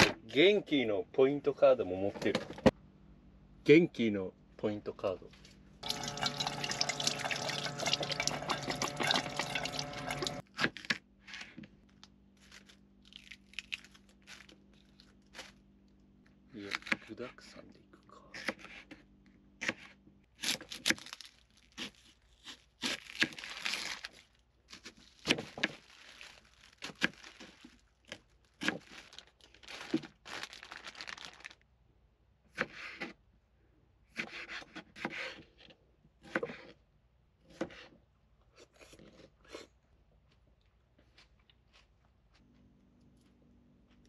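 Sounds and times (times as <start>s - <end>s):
plastic bag crinkling: 20.9s - 22.4s, 23.0s - 31.6s
knife chopping on wooden board: 34.1s - 35.4s.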